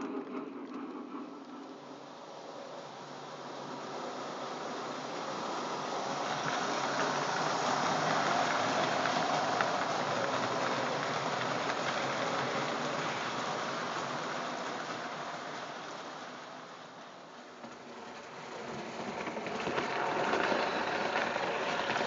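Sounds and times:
rail joint clicks: 0.0 - 1.9
model train wheels rumbling: 0.0 - 22.0.

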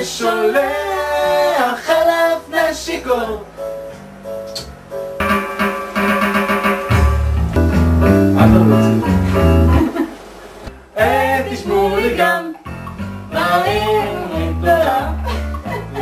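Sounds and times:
guitar and bass backing music: 2.4 - 10.0, 10.7 - 16.0
person singing: 8.3 - 9.9, 13.3 - 16.0.

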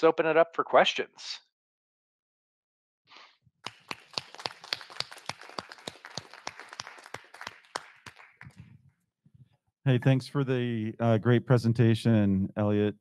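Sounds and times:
small audience clapping: 3.6 - 8.7.

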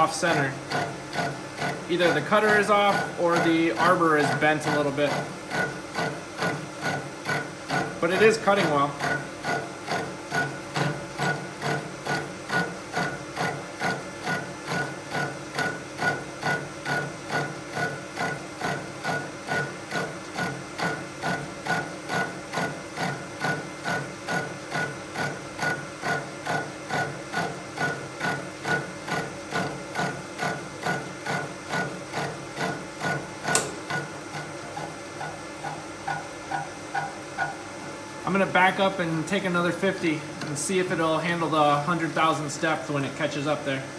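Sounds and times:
milling machine cutting: 0.0 - 43.9
sharp click: 33.5 - 34.0.

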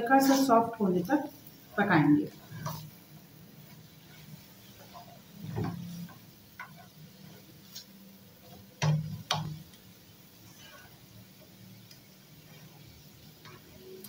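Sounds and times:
spatula knocking on wok: 8.7 - 9.6.

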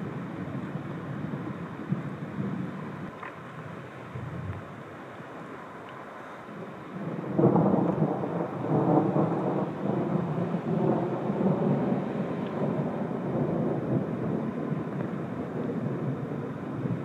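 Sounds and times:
thunder rolling and rumbling: 0.0 - 3.0, 6.9 - 17.0.

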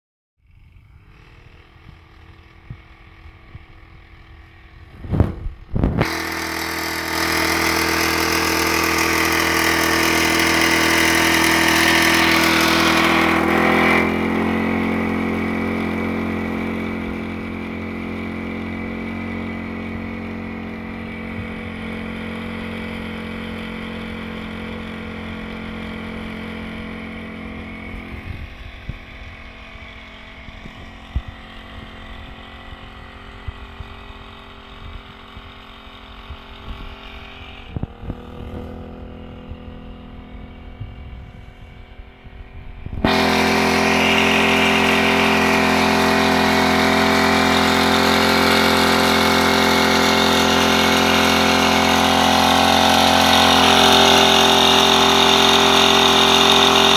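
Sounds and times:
small engine running: 0.4 - 56.9
sprayer rushing hiss: 6.0 - 28.1, 43.0 - 56.9.

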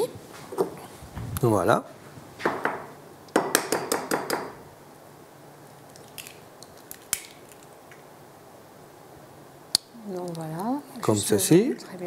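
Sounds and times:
eggshell cracking: 5.6 - 8.1.

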